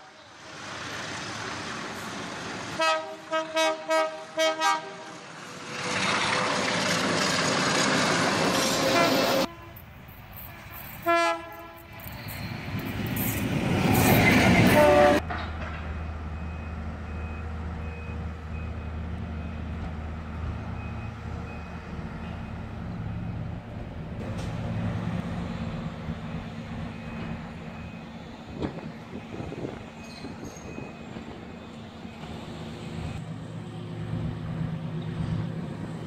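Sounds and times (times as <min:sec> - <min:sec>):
diesel locomotive passing: 0:00.0 - 0:36.0
train engine hum: 0:00.0 - 0:36.0
train horn: 0:02.8 - 0:05.3, 0:08.6 - 0:09.8, 0:11.0 - 0:12.3, 0:14.6 - 0:15.2.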